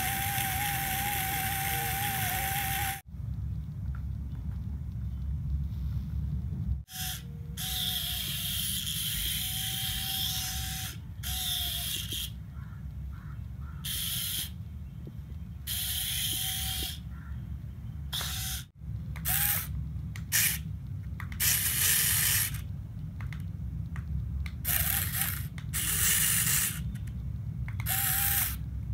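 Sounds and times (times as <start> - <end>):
toy electric motors whirring: 0.0 - 3.1, 6.9 - 12.4, 13.8 - 14.6, 15.7 - 17.0, 18.1 - 20.6, 21.2 - 22.7, 24.6 - 27.1, 27.8 - 28.6
low hum: 0.0 - 13.8, 14.5 - 28.9.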